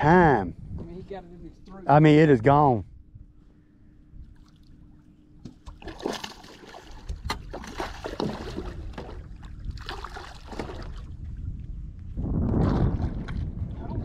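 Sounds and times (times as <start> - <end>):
faint steady hum: 0.0 - 14.0
water splashes: 5.6 - 11.4.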